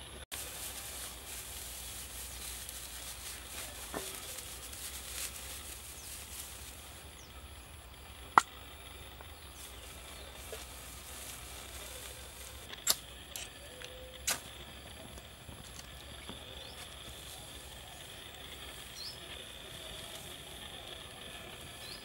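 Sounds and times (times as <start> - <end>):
fire starter clicks: 12.7 - 14.6.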